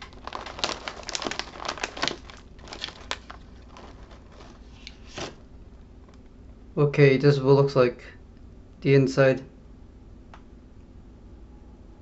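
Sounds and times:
plastic snack bag crinkling: 0.0s - 6.3s.

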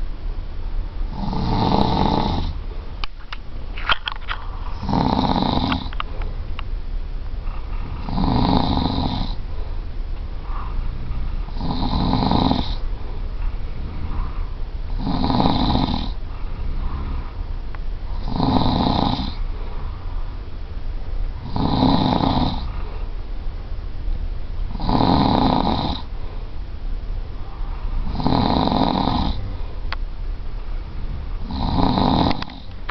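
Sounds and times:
person snoring heavily: 1.1s - 2.6s, 4.5s - 6.0s, 7.5s - 9.4s, 10.4s - 12.9s, 13.7s - 17.4s, 18.0s - 20.1s, 21.4s - 23.1s, 24.7s - 26.1s, 27.4s - 29.8s, 31.3s - 32.8s.

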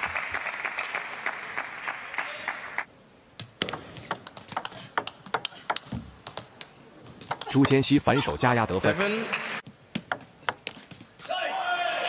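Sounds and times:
crowd applause: 0.0s - 2.9s, 8.9s - 9.6s
table tennis ball clicking: 6.6s - 7.5s.

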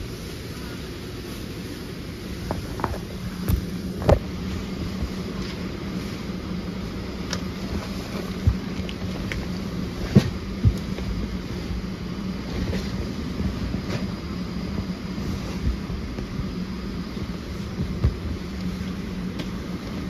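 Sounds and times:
aircraft cabin air system hum: 0.0s - 20.0s.

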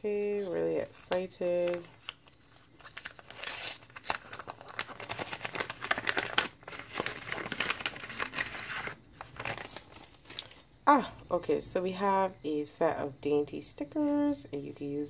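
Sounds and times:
paper packet tearing and crinkling: 0.4s - 10.6s.

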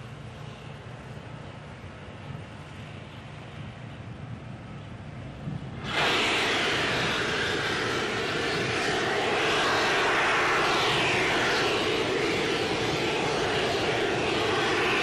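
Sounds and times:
gas venting hiss: 5.8s - 15.0s.

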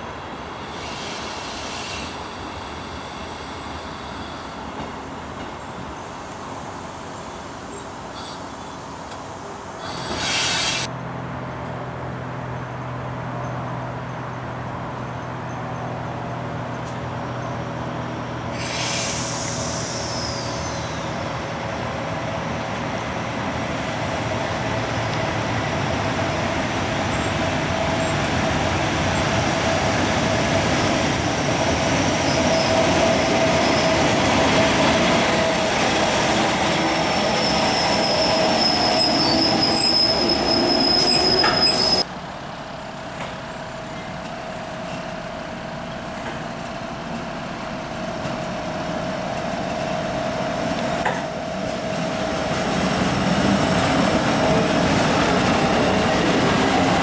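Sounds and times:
train wheels rumbling on rails: 0.0s - 57.0s
wheel squeal: 17.1s - 21.6s, 32.2s - 42.1s.

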